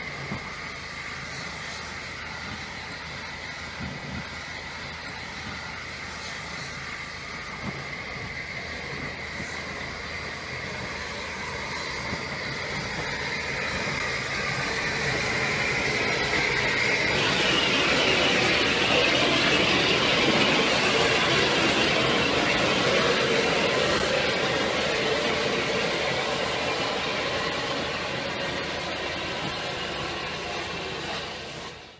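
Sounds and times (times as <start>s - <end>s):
steam locomotive passing: 0.0s - 31.9s.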